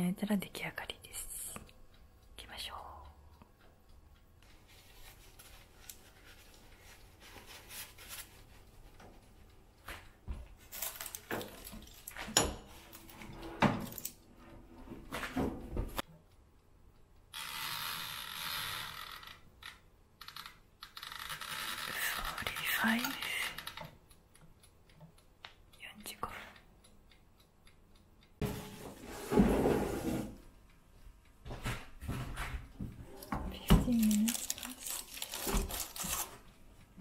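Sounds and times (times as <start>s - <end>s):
baking tray and dishes clattering: 10.7s - 14.0s, 28.4s - 30.4s.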